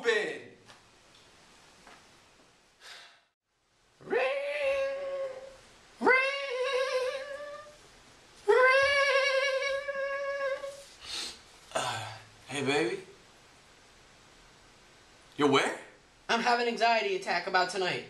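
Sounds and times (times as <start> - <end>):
high voice singing: 4.0 - 7.8, 8.4 - 10.9.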